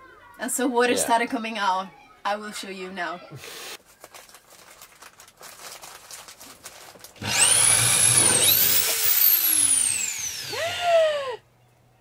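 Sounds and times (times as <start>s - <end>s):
electric drill whining: 7.2s - 11.1s.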